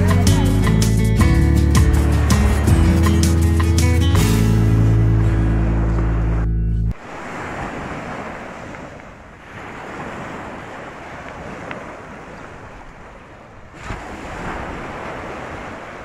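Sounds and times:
small waves breaking: 4.8 - 16.0.

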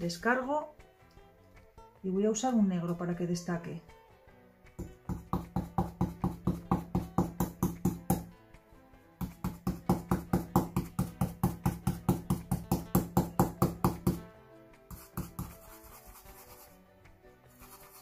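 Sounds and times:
stencil brush tapping on board: 4.7 - 8.3, 9.2 - 14.3, 14.9 - 16.8, 17.6 - 18.0.

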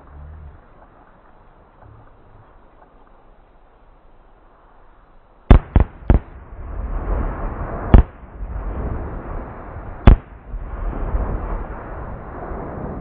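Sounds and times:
low rumble: 0.0 - 3.8, 5.5 - 13.0
firework mortar bangs: 5.5 - 13.0.

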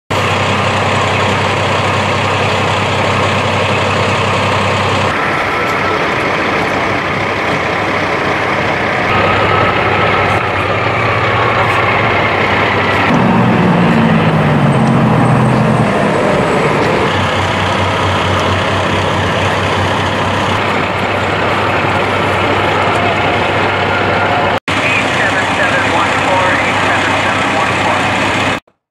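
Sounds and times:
truck engine idling hum: 0.1 - 28.6
constant noisy wash: 15.9 - 28.6.

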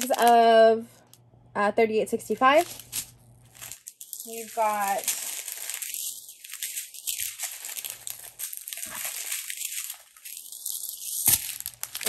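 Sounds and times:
plastic bags crinkling: 0.0 - 1.2, 2.3 - 12.0.

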